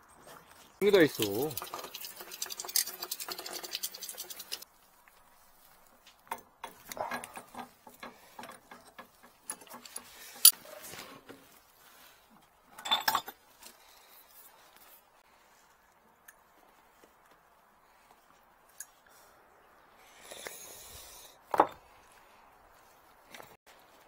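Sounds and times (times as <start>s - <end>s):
metal tools clinking on pipe fittings: 6.2s - 10.6s, 12.7s - 13.4s.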